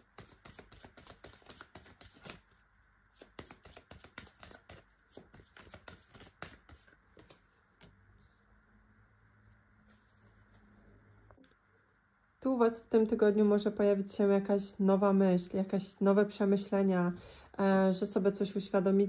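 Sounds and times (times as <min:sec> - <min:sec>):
cards being shuffled: 0:00.0 - 0:08.4.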